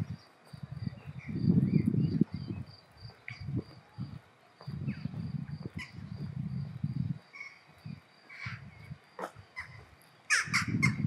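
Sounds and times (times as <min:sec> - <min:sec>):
birds calling: 0:04.6 - 0:06.3, 0:07.3 - 0:11.0
crow cawing: 0:09.2 - 0:11.0.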